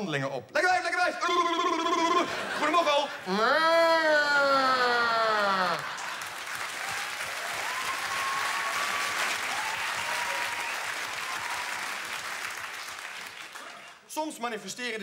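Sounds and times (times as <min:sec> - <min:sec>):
person shouting: 0:03.3 - 0:05.8
audience applauding: 0:05.0 - 0:14.1.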